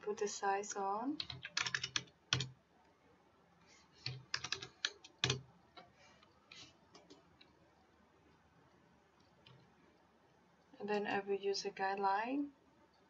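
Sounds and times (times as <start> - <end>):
computer keyboard typing: 1.2 - 2.6, 4.0 - 5.8.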